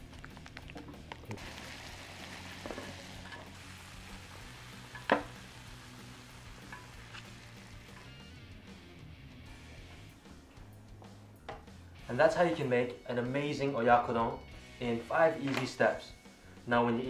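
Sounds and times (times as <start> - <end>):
food sizzling in a frying pan: 1.4 - 8.4.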